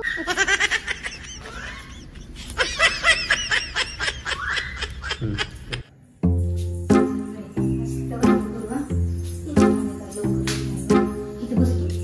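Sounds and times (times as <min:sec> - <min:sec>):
high-pitched sniggering laughter: 0:00.0 - 0:05.9.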